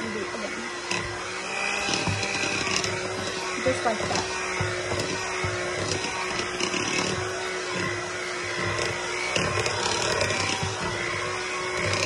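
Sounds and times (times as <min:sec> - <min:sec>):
electric hand mixer whining: 0:00.0 - 0:12.0.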